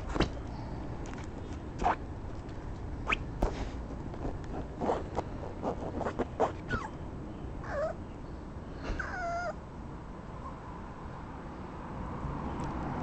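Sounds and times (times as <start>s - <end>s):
puppy whining: 4.5s - 7.0s, 7.6s - 8.0s, 8.9s - 9.6s.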